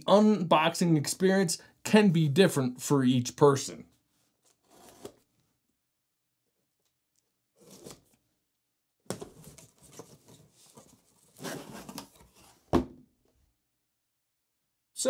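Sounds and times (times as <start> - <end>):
cardboard scraping: 4.4 - 5.3, 9.1 - 12.7
cardboard knock: 12.7 - 13.0.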